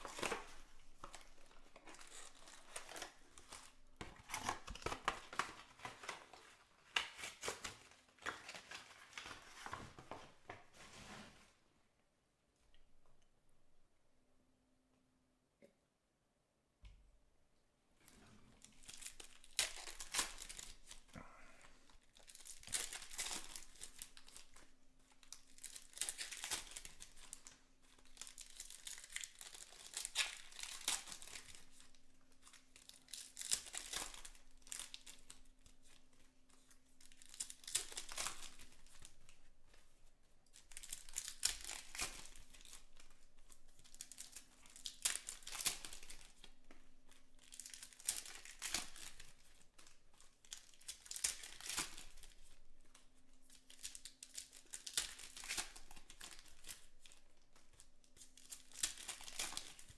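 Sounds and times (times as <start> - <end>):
card pack wrappers tearing and crinkling: 0.0 - 9.9, 18.6 - 21.3, 22.1 - 36.0, 37.0 - 39.3, 40.5 - 46.6, 47.3 - 59.9.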